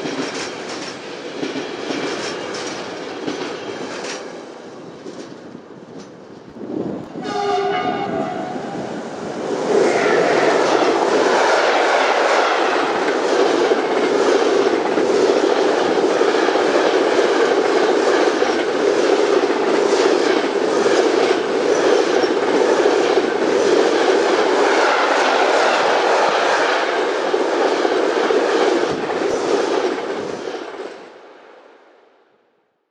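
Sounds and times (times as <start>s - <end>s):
wheels clacking over rail joints: 0.0s - 7.8s, 10.0s - 31.0s
train wagons rumbling and rattling: 0.0s - 31.2s
train horn: 7.2s - 9.0s, 9.8s - 13.0s, 24.6s - 27.1s.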